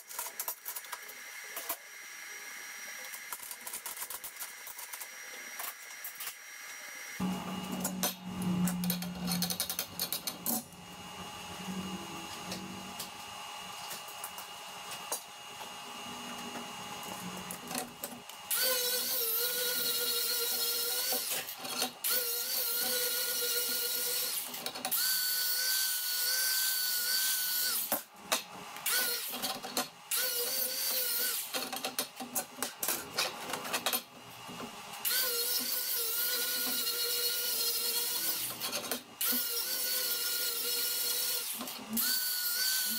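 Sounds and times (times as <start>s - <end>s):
grinder motor whine: 4.4s - 28.0s
disc grinding steel: 7.2s - 13.0s.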